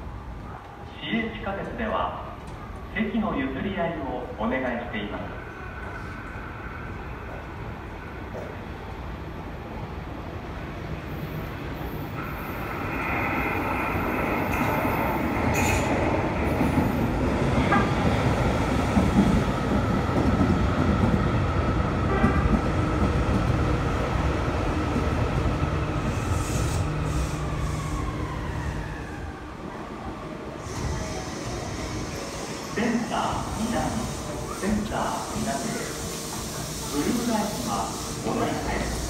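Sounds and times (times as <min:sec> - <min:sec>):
train drive whine: 0:10.9 - 0:39.0
train wheels rumbling on rails: 0:11.2 - 0:29.3.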